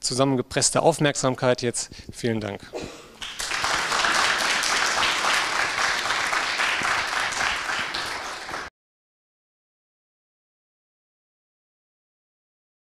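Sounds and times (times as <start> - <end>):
audience applauding: 3.2 - 8.7.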